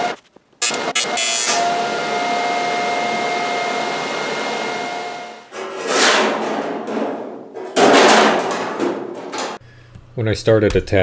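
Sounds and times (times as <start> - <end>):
welding arc buzzing hiss: 0.0 - 1.7
metal sheets scraping and rattling: 5.5 - 9.6.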